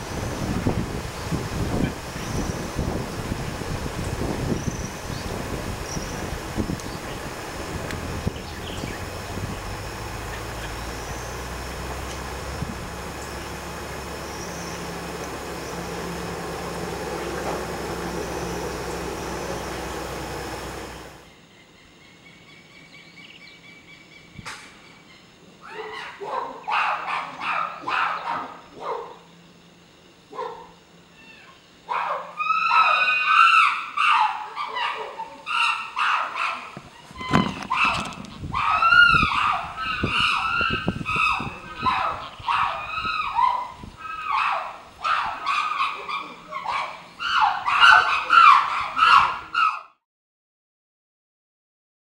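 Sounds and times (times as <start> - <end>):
chimpanzee calling and screaming: 25.6 - 29.0, 31.1 - 50.0.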